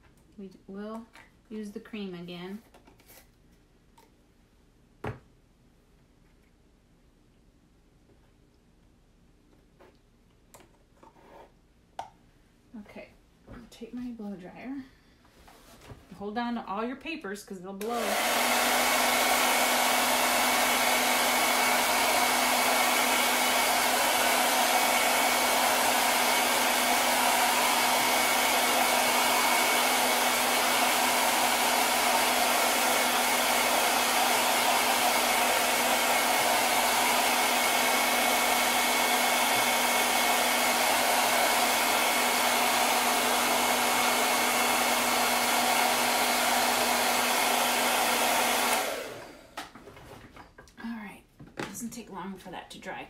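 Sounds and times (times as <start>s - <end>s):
hair dryer running: 17.8s - 49.8s.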